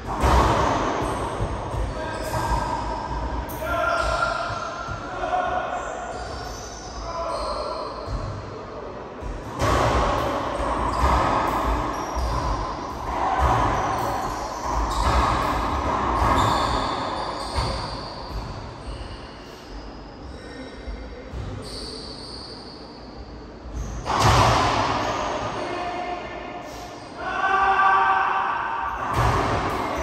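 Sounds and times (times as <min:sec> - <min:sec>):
sneakers squeaking on court floor: 0:10.6 - 0:24.4.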